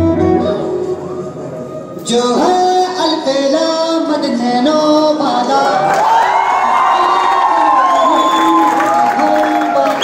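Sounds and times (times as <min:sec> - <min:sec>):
person singing long held notes: 0:00.0 - 0:06.0.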